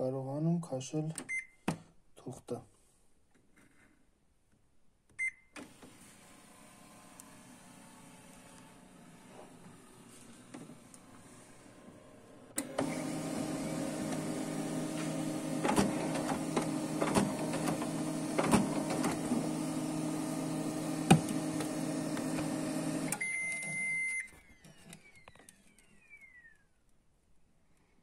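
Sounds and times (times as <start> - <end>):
printer feed motor and rollers: 5.6 - 23.8.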